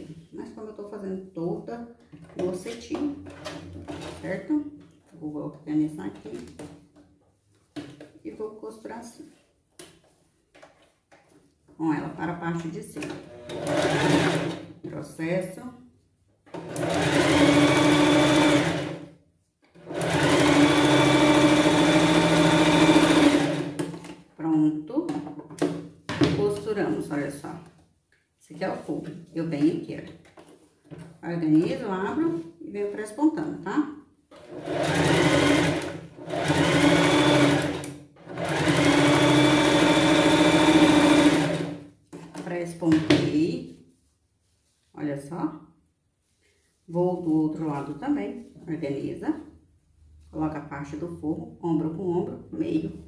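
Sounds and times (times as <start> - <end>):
sewing machine stitching: 13.1 - 14.7, 16.5 - 19.0, 19.8 - 23.8, 34.3 - 41.8.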